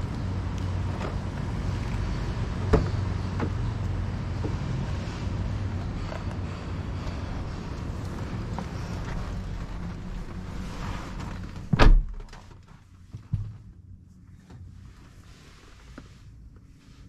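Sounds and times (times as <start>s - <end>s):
street rumble: 0.0s - 14.2s
wind: 0.0s - 17.0s
car door slamming: 11.7s - 12.2s.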